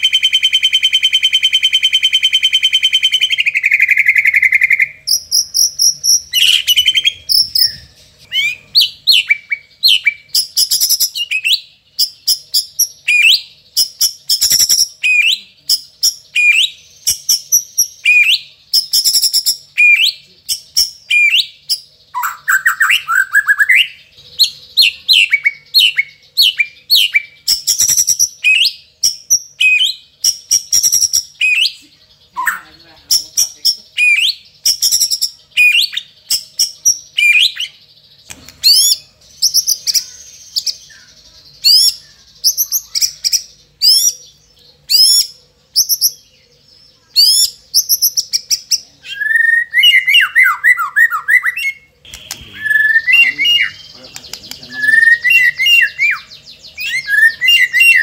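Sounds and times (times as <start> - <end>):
bird singing whistled notes: 0.0 - 58.0
buzzy bird call: 47.1 - 58.0.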